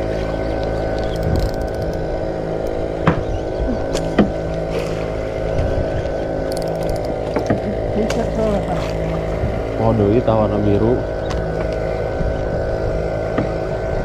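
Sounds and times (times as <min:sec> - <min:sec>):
small boat engine running: 0:00.0 - 0:14.0
sharp knocks: 0:03.0 - 0:03.2.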